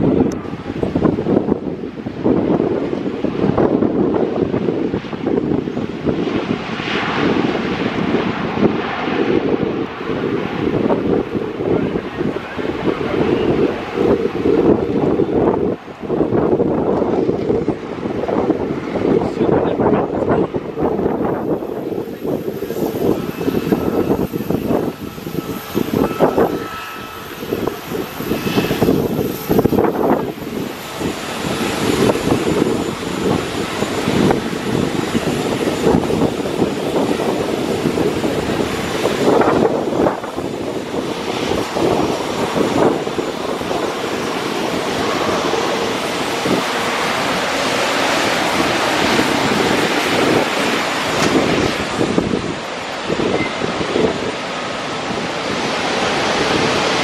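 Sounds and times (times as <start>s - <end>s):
airliner engines roaring: 0.0s - 57.0s
wind buffeting microphone: 0.0s - 57.0s
faint high whine: 21.8s - 40.9s.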